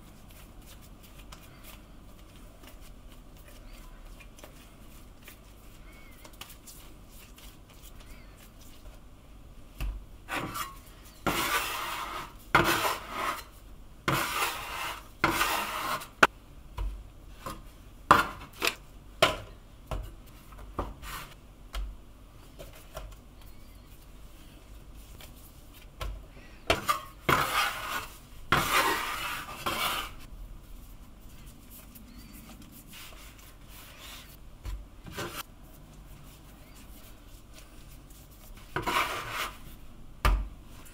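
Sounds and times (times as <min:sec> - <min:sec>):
scraping on wooden cutting board: 0:10.3 - 0:13.5, 0:14.1 - 0:16.2, 0:26.7 - 0:30.3, 0:38.6 - 0:39.7.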